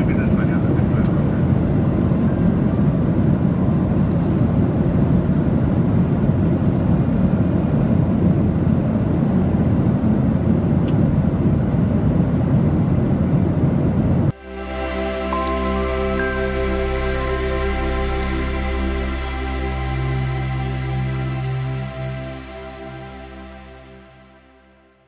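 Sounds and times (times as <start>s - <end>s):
jet engines rumbling in cabin: 0.0s - 14.4s.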